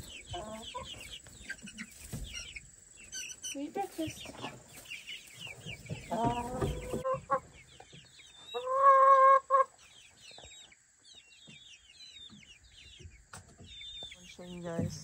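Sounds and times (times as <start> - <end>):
chicken calling: 0.0 - 10.5
chicks peeping: 0.0 - 15.0.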